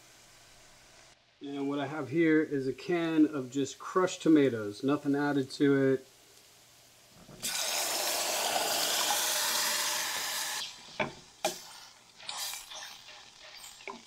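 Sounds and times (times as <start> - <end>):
tomatoes sizzling in hot oil: 3.4 - 14.0.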